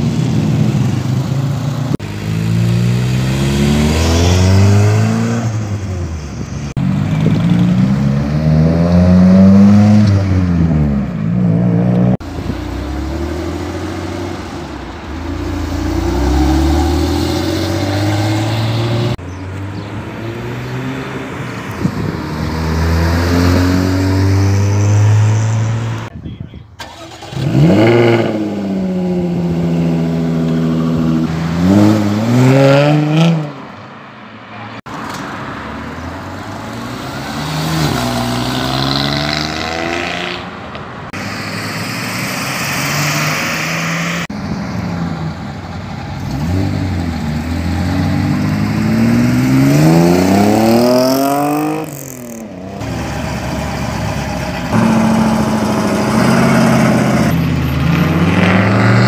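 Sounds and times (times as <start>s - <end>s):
car engines revving and accelerating: 0.0s - 26.1s, 26.9s - 59.0s.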